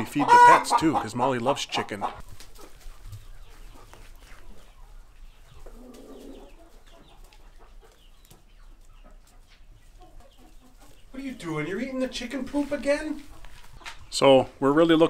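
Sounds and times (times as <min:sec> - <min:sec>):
chicken short calls: 0:00.0 - 0:02.2
chickens clucking: 0:00.0 - 0:15.0.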